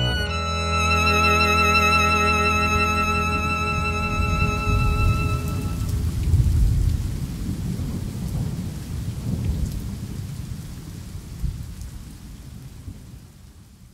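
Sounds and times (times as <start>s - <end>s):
steady rain: 0.0s - 13.9s
thunder rumbling: 2.8s - 10.5s.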